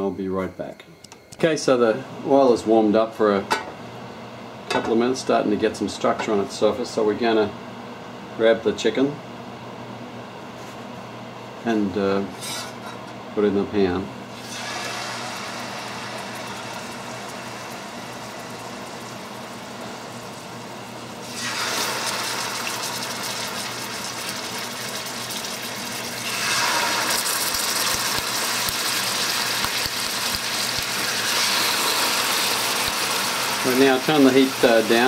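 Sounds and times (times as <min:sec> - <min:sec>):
chicken sizzling in oil: 0:14.3 - 0:35.0.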